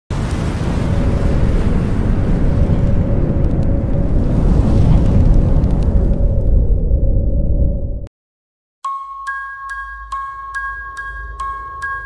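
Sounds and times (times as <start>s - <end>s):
deep dense rumble: 0.1s - 8.1s.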